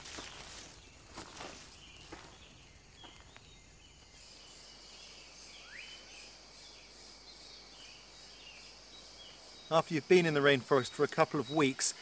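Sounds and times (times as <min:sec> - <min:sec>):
high insect drone: 0:00.0 - 0:12.0
bird chirps: 0:01.7 - 0:06.8.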